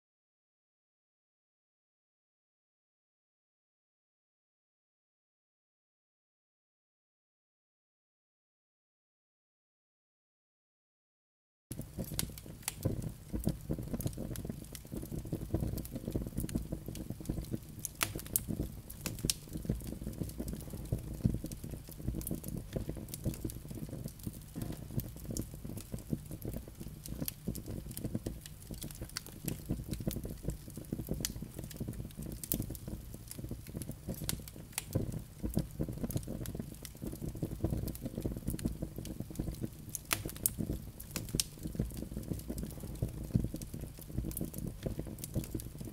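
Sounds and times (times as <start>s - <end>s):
burning logs crackling and popping: 11.7s - 45.9s
fire flames rushing: 11.8s - 45.9s.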